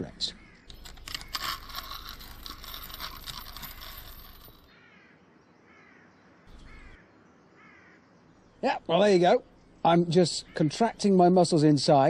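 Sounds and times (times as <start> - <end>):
metal chains rattling: 0.7 - 4.7
bird calling: 4.7 - 8.8.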